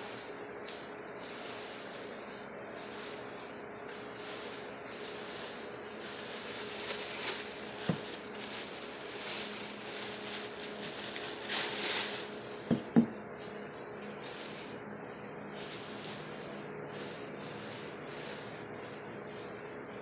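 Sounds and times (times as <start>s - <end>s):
plastic bag rustling: 0.0s - 19.5s
faint steady hum: 0.0s - 20.0s
knocks on hard surface: 12.7s - 13.2s.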